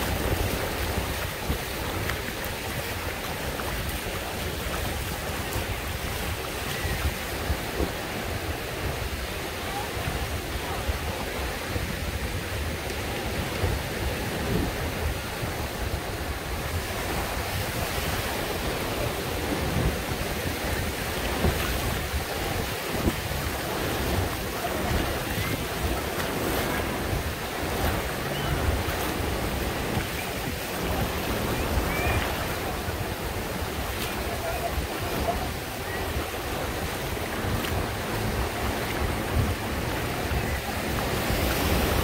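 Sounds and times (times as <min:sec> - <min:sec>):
surf washing over sandy beach: 0:00.0 - 0:42.0
wind rumbling on microphone: 0:00.0 - 0:42.0.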